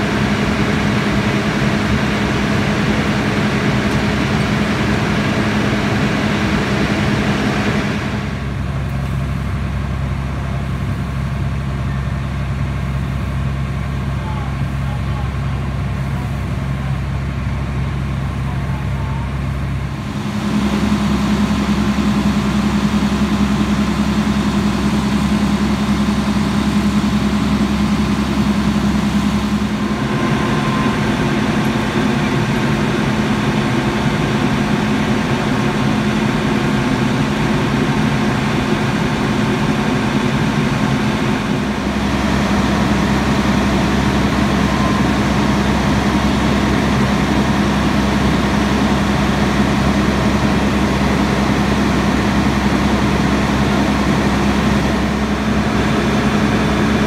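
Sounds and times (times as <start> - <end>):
diesel engine humming: 0.0 - 57.0
higher steady hum: 0.0 - 57.0.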